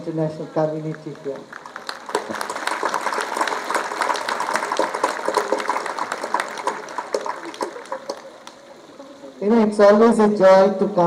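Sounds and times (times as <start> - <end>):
audience applauding: 0.9 - 9.1.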